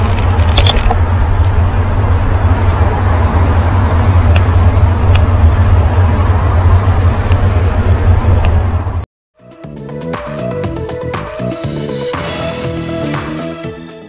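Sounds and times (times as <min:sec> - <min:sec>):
wind buffeting microphone: 0:00.0 - 0:09.0
road traffic: 0:00.0 - 0:14.0
music: 0:09.4 - 0:14.0.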